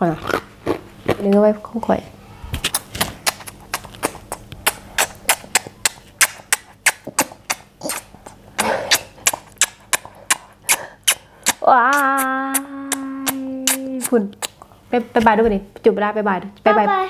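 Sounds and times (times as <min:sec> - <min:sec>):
child giving smacking kisses: 0:02.5 - 0:14.7.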